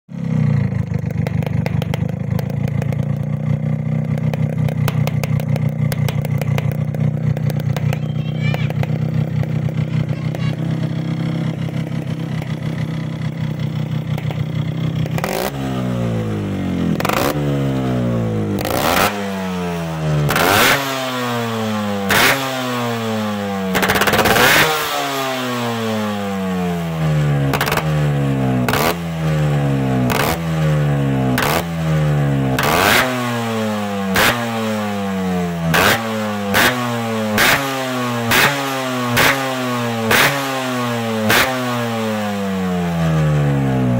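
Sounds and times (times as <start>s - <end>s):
two-stroke engine idling and revving: 0.1s - 43.9s.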